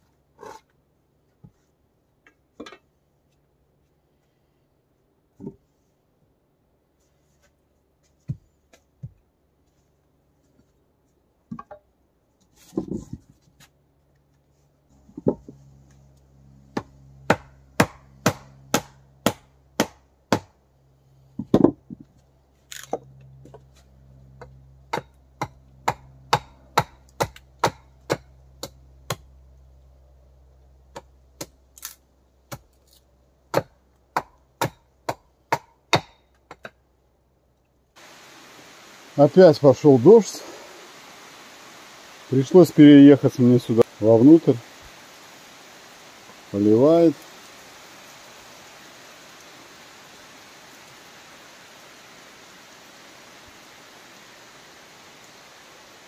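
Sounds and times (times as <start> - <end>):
chopping wood: 16.7 - 20.6, 24.4 - 29.3, 30.9 - 32.8, 33.5 - 36.8.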